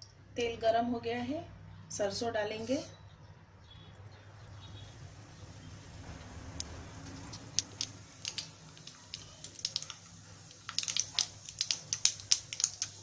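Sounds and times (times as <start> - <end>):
oil sizzling: 5.1 - 13.0
mustard seeds popping: 6.6 - 13.0.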